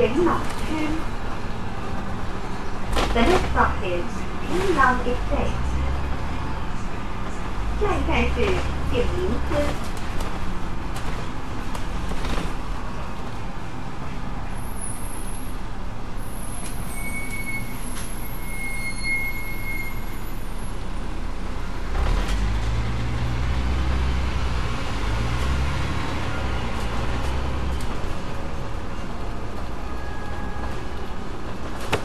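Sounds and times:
bus engine and road noise: 0.0s - 32.0s
thin high whistle: 16.9s - 20.2s.

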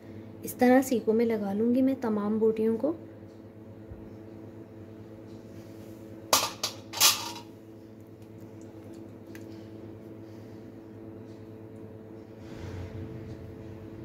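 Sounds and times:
steady low hum: 0.0s - 14.0s
metal skewer clattering on tray: 6.3s - 7.5s.

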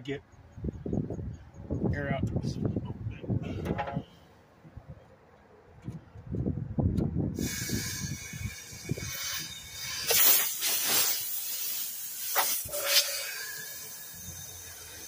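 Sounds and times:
compressed air hissing from hose: 7.4s - 15.0s.

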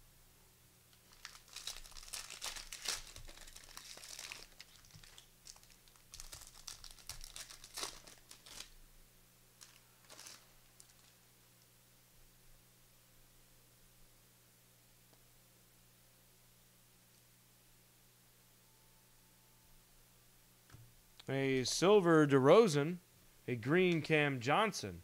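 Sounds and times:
card pack wrapper tearing and crinkling: 1.0s - 8.8s, 9.6s - 11.2s.

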